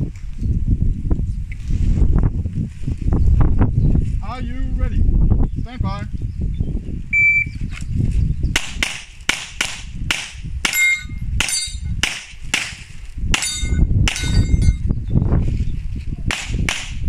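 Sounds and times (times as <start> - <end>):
shot timer beep: 7.2 - 7.6
bullet ringing on steel plate: 10.7 - 11.9, 13.4 - 14.8.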